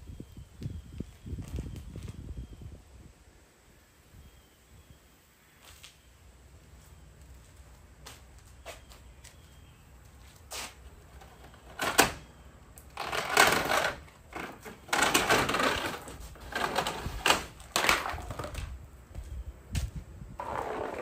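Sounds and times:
knocking scraping and rattling: 0:11.2 - 0:12.2, 0:12.9 - 0:18.7, 0:20.4 - 0:21.0.

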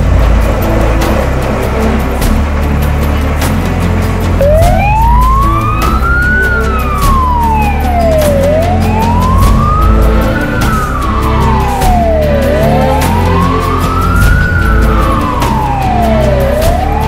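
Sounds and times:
music: 0:00.0 - 0:17.0
fire engine siren wailing: 0:04.0 - 0:17.0.

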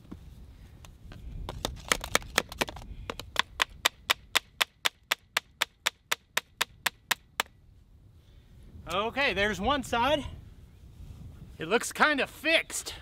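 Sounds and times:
sharp taps on plastic pipe: 0:01.5 - 0:07.5.

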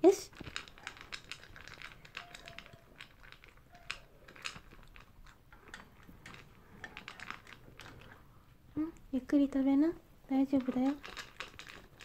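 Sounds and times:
dog crunching dry kibble: 0:00.0 - 0:08.6, 0:10.3 - 0:12.0.

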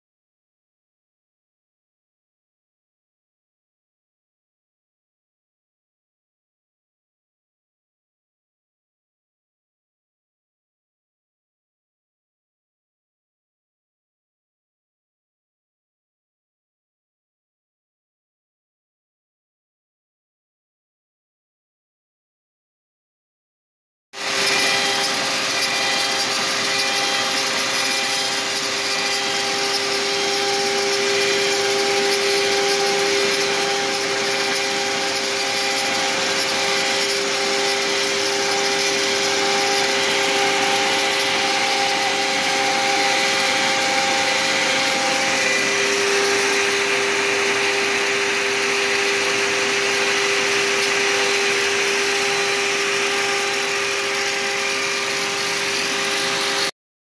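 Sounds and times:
router spindle whine: 0:24.2 - 0:56.7.

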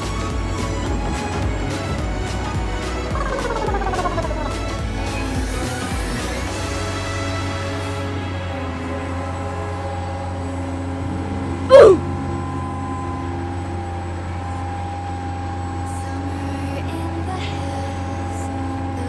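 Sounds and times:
engine-like drone: 0:00.0 - 0:19.0
squeal falling in pitch: 0:03.1 - 0:04.7.

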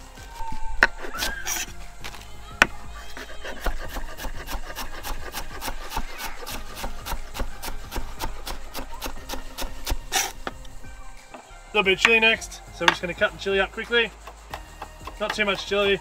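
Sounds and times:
knife chopping on board: 0:00.4 - 0:11.4.

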